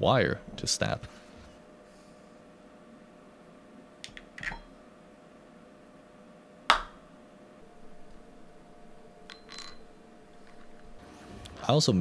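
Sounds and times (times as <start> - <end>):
metal weights clacking onto desk: 9.3 - 11.0.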